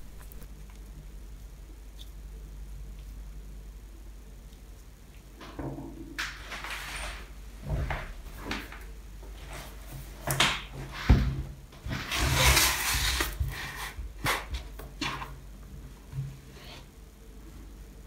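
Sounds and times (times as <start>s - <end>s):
laptop scraping across wood: 11.9s - 14.0s.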